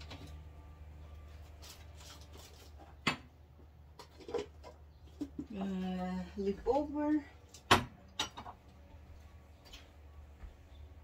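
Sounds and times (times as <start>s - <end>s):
steady low hum: 0.0s - 11.0s
plastic containers being handled: 1.3s - 5.9s.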